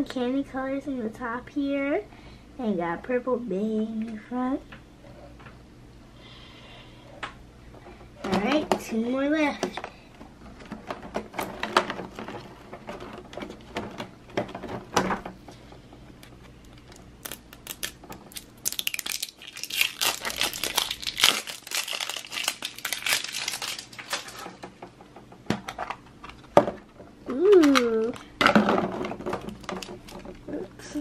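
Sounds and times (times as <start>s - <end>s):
plastic packaging crinkling: 16.6s - 24.8s.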